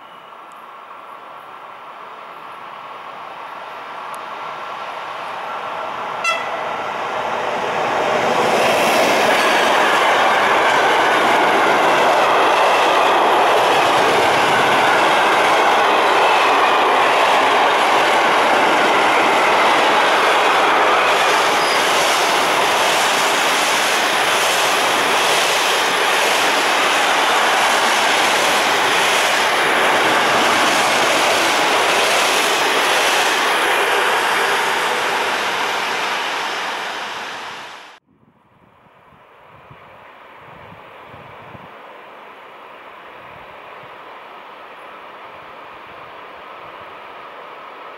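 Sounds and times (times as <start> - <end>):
train wheels rumbling on rail: 3.9 - 38.0.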